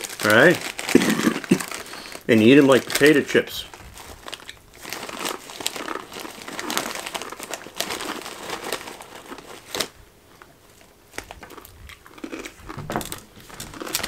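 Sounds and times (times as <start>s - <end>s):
plastic snack bag crinkling: 0.0s - 14.0s.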